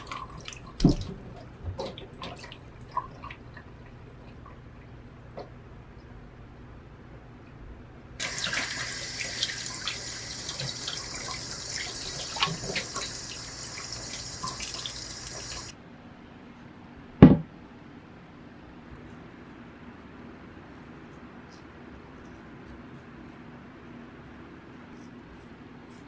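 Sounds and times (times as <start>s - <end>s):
tap water splashing on fruit: 0.0s - 2.5s, 8.2s - 15.7s.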